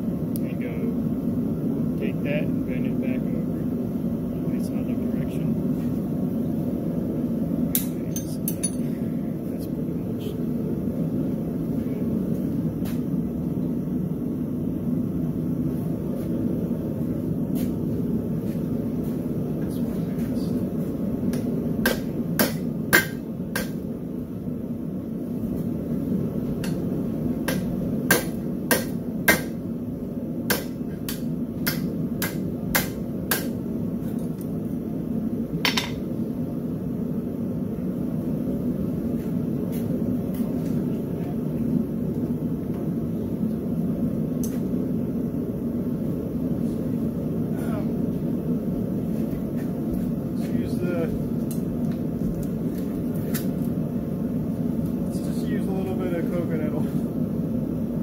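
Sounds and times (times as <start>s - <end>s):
hammer striking hot steel: 7.7s - 9.0s, 21.3s - 23.8s, 26.6s - 29.6s, 30.5s - 33.6s, 35.6s - 36.1s.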